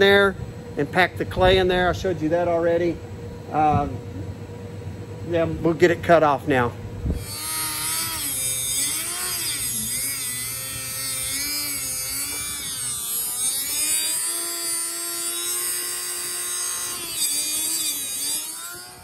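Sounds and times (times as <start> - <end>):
rotary tool grinding steel: 7.1 - 19.0.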